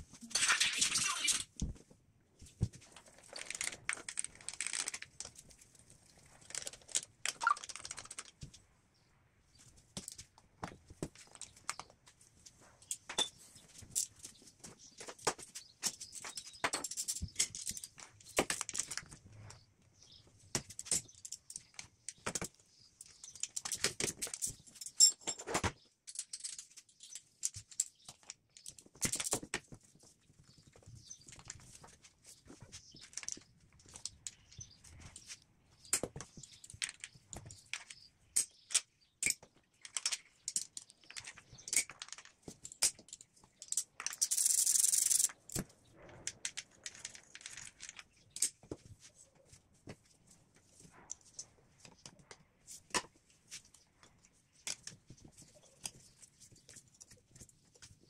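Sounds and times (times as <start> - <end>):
metal parts clicking and clinking: 3.2 - 5.1, 16.3 - 19.0, 20.8 - 29.4, 36.5 - 45.6.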